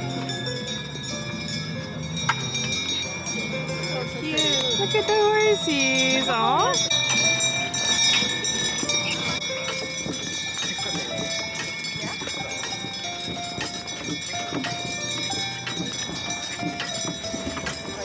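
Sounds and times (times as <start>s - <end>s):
harness chains jingling: 0.0s - 18.0s
wagon rattling: 0.0s - 18.0s
horse hoof steps: 4.4s - 18.0s.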